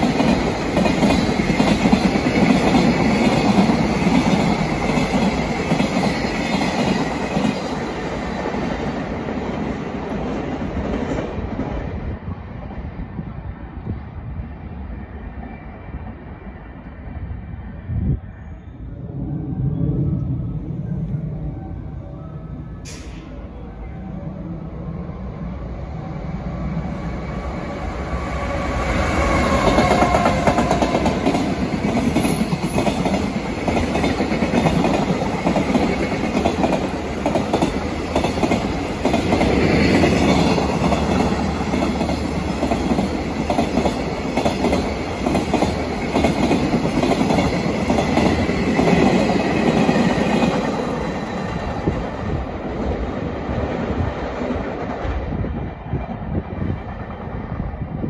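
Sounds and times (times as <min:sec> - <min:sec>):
train wheels clattering over rails: 0:29.0 - 0:52.2.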